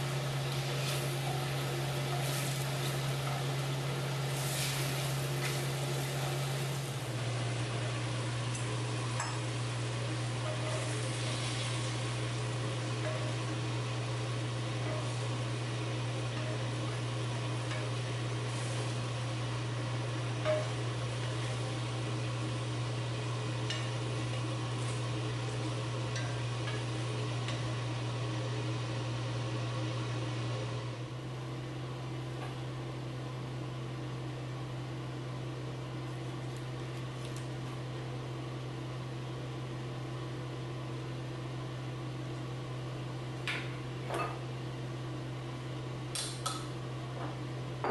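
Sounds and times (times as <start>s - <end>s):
chicken sizzling in a skillet: 0.0s - 30.5s
steady low hum: 0.0s - 47.9s.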